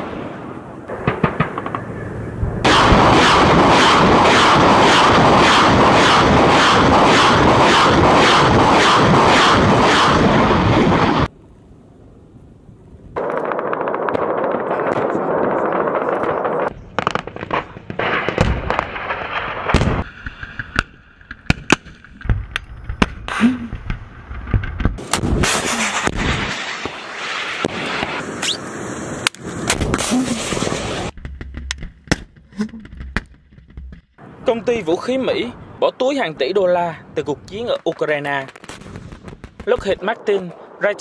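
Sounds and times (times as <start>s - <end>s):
launch blast: 0.0s - 11.3s, 13.2s - 20.2s, 21.7s - 31.2s
gunshots: 0.9s - 1.9s, 2.6s - 11.3s, 25.0s - 28.6s
loud rushing noise: 2.1s - 11.3s.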